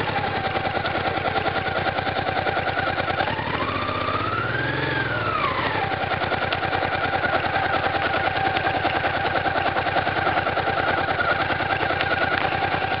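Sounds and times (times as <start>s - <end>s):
motorcycle engine at low revs: 0.0s - 13.0s.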